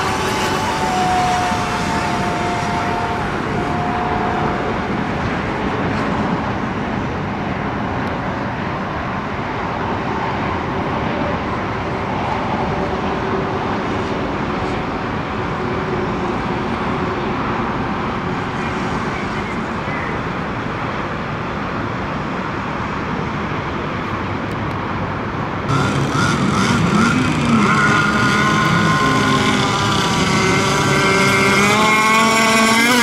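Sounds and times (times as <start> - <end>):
model boat motors: 0.0 - 5.8, 25.1 - 33.0.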